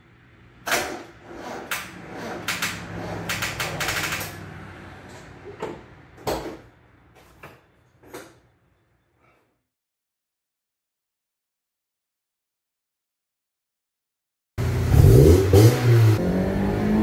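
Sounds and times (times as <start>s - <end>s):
car engine cranking: 0.7s - 5.3s.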